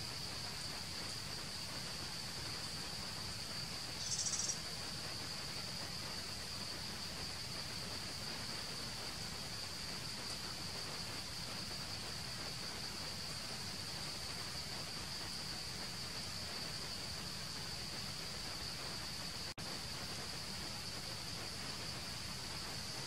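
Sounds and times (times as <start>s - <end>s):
outdoor background hiss: 0.0s - 23.0s
insect buzzing: 4.0s - 4.6s.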